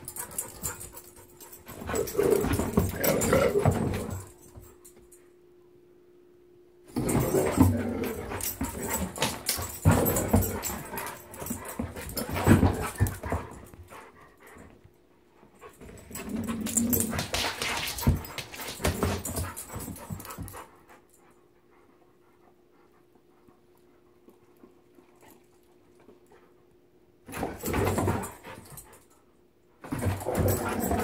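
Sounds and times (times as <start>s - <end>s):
dogs scuffling and clattering: 0.0s - 5.2s, 6.9s - 21.2s, 27.2s - 29.2s, 29.8s - 31.0s
dogs panting: 7.4s - 24.2s.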